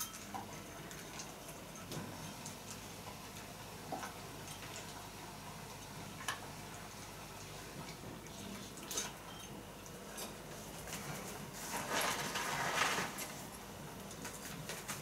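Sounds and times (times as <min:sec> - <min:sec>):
puppy eating from a bowl: 0:00.0 - 0:05.3, 0:07.5 - 0:11.4.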